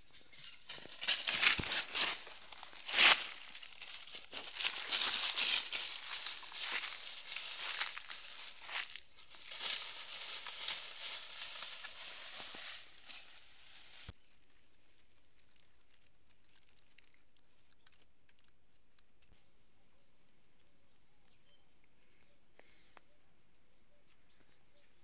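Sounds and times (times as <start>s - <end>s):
dry leaves rustling and crackling: 0.0s - 14.2s.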